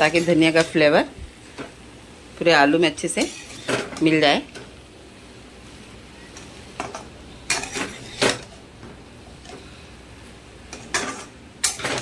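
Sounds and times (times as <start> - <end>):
spoon scraping and knocking a pan: 3.1 - 4.0, 6.4 - 8.6.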